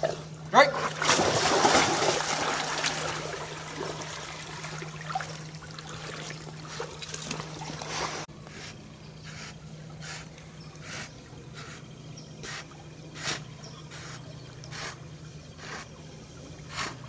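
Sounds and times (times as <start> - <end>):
water sloshing and splashing: 0.3 - 8.3.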